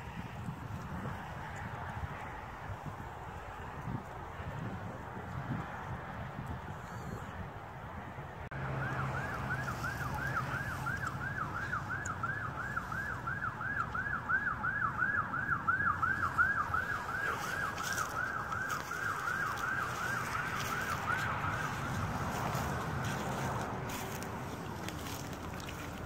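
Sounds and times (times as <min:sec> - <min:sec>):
siren yelping: 0:08.5 - 0:25.9.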